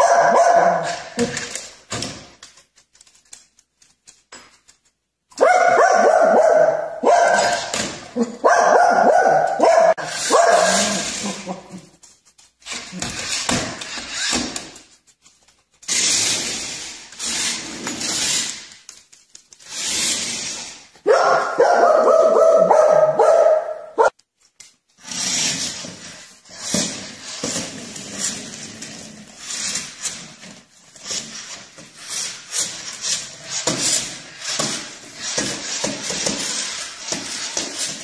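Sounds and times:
dog barking: 0:00.0 - 0:01.1, 0:05.4 - 0:11.1, 0:21.0 - 0:24.1.

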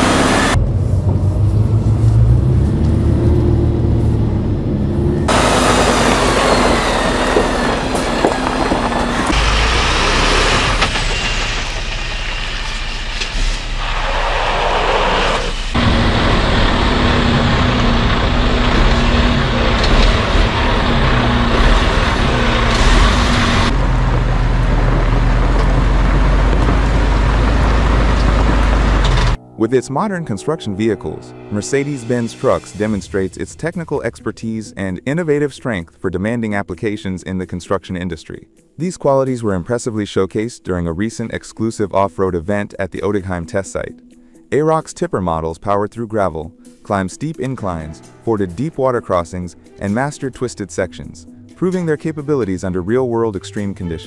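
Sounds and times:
diesel truck engine running: 0:00.0 - 0:29.5
truck driving over gravel: 0:05.3 - 0:29.4.

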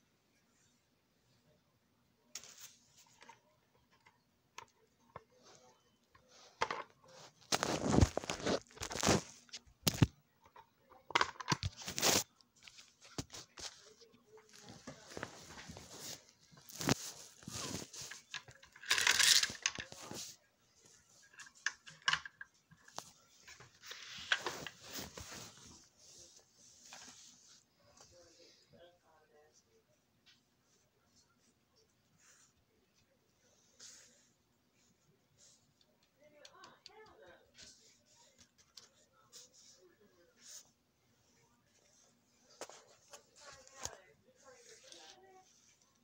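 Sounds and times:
soft rustles: 0:11.7 - 0:18.6, 0:22.7 - 0:28.7.

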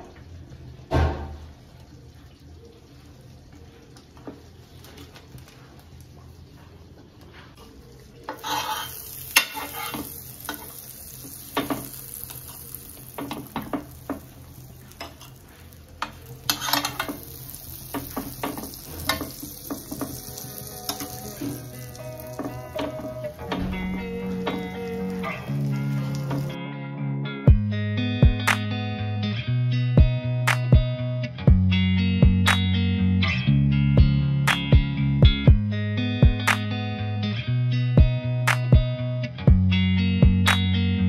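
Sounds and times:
thump: 0:00.9 - 0:01.4
butter sizzling in pan: 0:07.6 - 0:26.6
knocks and scrapes against pan: 0:08.3 - 0:10.6, 0:16.0 - 0:17.2.

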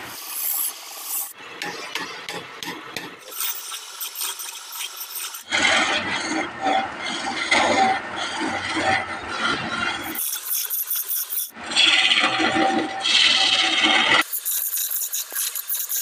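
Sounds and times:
chisel cutting wood on lathe: 0:03.2 - 0:16.0.

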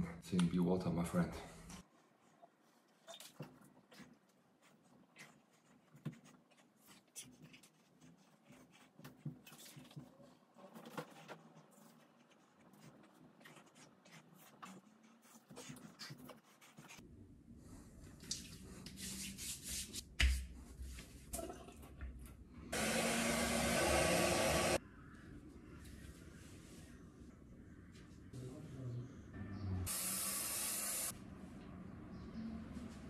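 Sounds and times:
rubbing and handling: 0:01.8 - 0:17.0.

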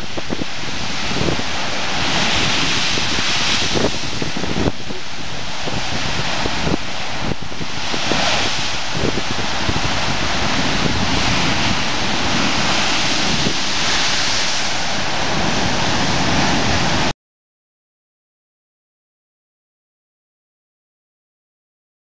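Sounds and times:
surf crashing over rocks: 0:00.0 - 0:17.1
wind buffeting microphone: 0:00.0 - 0:17.1.

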